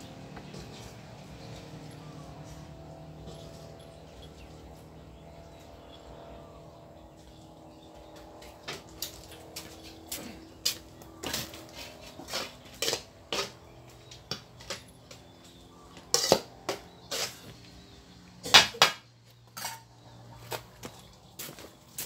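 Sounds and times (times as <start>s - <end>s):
cats chewing and clicking: 0.0s - 17.0s.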